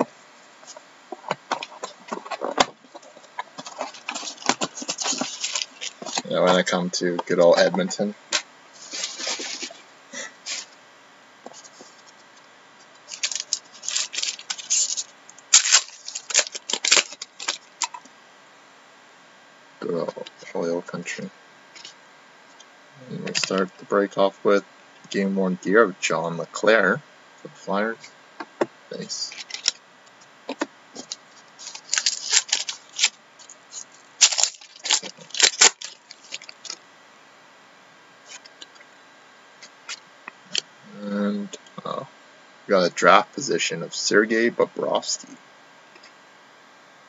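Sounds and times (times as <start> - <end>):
foil wrapper crinkling: 0.7 - 9.8, 13.0 - 18.1, 29.2 - 29.8, 30.5 - 36.8.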